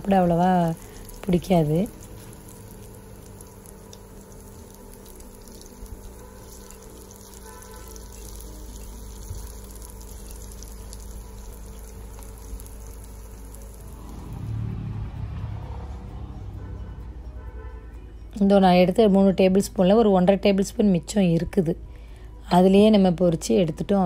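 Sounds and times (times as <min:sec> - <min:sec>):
food sizzling in oil: 0:00.0 - 0:14.4
low rumble: 0:13.6 - 0:17.4.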